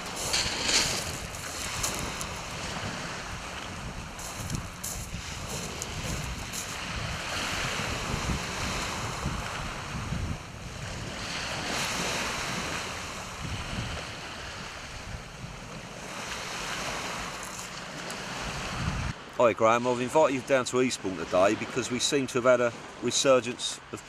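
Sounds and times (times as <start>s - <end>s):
wind buffeting microphone: 0.0s - 19.2s
waves washing on shingle: 0.0s - 24.0s.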